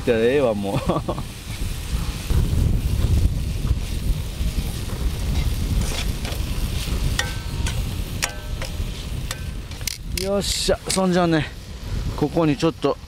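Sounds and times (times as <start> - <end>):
wind buffeting microphone: 0.0 - 13.0
metal tongs clinking on wok: 7.2 - 10.0.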